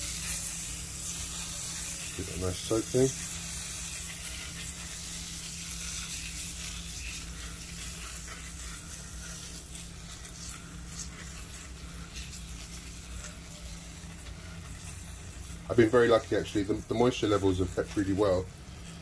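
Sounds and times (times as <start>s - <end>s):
hiss of water mist spraying: 0.0s - 13.6s.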